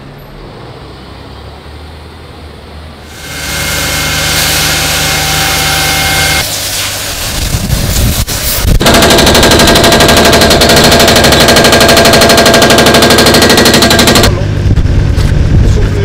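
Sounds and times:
hydraulic breaker hammering concrete: 3.1 - 6.5, 8.8 - 14.4.

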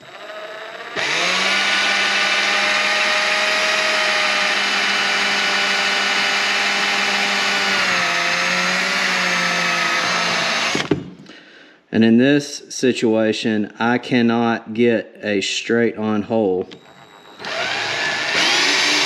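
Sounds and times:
electric drill boring fiberglass: 0.0 - 10.9, 16.7 - 19.0.

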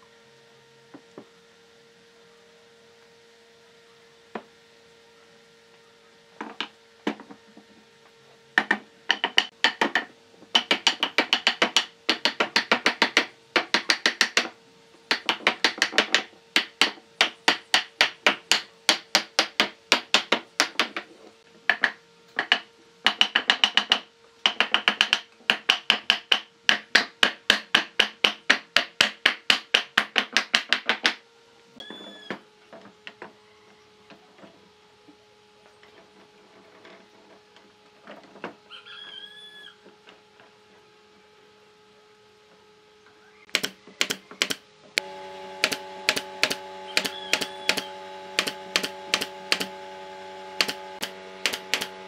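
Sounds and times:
wooden mallet knocking wood: 8.6 - 14.5.

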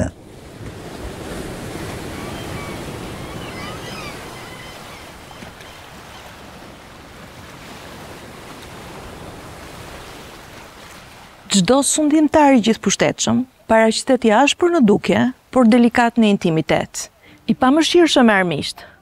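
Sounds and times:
sea surf washing: 0.0 - 13.3.

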